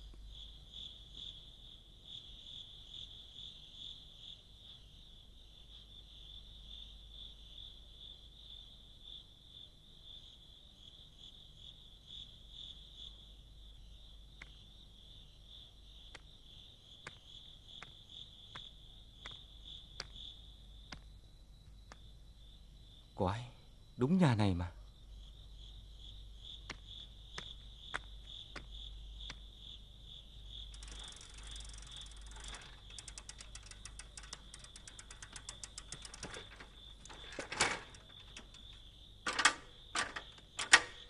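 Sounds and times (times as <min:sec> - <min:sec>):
crickets chirping: 0:00.0 - 0:41.0.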